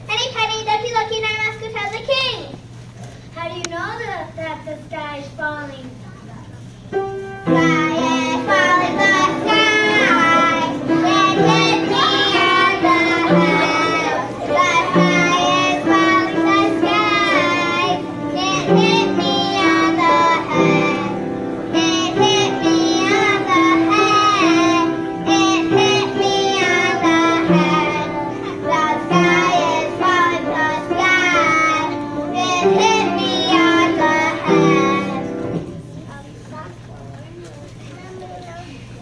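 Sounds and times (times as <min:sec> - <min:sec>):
piano chords: 0:06.9 - 0:36.1
children singing: 0:07.4 - 0:35.6.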